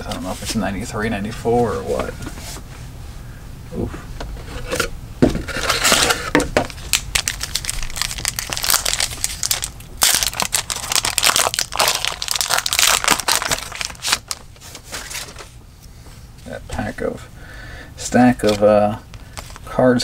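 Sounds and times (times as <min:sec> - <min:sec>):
wrapper being torn and crinkled: 0:05.7 - 0:15.5.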